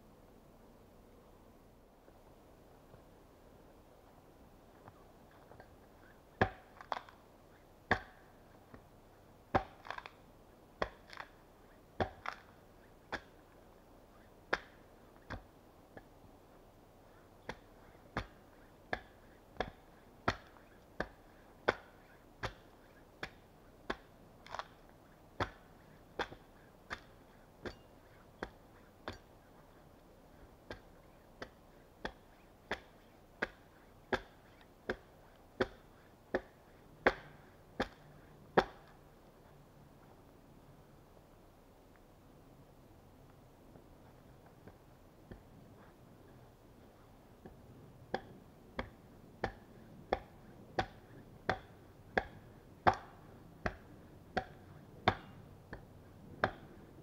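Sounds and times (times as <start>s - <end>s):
axe chopping into log: 6.4s - 7.1s, 7.9s - 8.2s, 9.6s - 10.1s, 12.0s - 12.4s, 18.2s - 24.7s, 26.2s - 27.1s, 30.7s - 35.8s, 36.4s - 38.0s, 48.1s - 53.8s, 54.4s - 55.4s.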